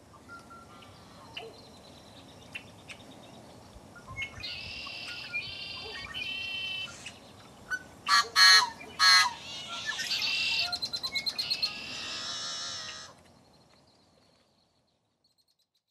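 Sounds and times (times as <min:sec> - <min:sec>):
birds calling: 0:04.0 - 0:13.2.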